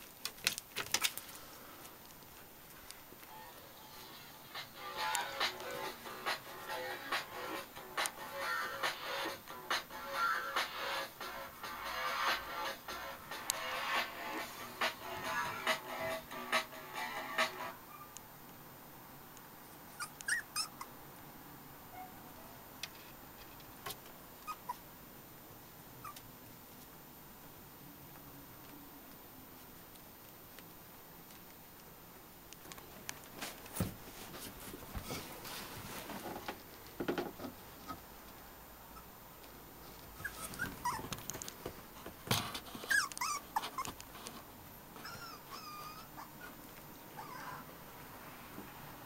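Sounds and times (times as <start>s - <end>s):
scuffling clicks: 0.0s - 3.3s, 39.4s - 44.5s
puppies squeaking: 17.9s - 18.2s, 20.0s - 20.9s, 24.4s - 24.8s, 40.2s - 41.2s, 42.7s - 44.0s, 45.0s - 47.6s.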